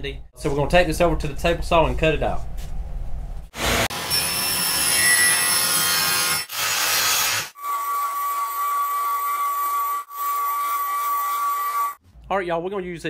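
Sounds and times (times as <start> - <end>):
power saw cutting plywood: 3.6 - 12.0.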